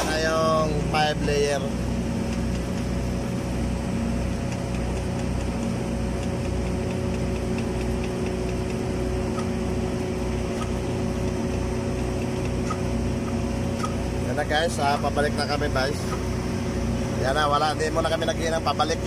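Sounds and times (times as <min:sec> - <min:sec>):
low throb: 0:00.0 - 0:19.0
welding machinery hum: 0:00.0 - 0:19.0
faint ticking: 0:02.1 - 0:03.0, 0:04.1 - 0:15.4.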